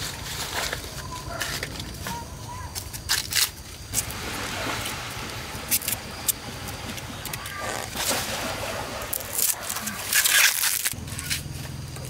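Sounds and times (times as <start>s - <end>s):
corn husks tearing and rustling: 0.0s - 4.0s, 9.1s - 11.7s.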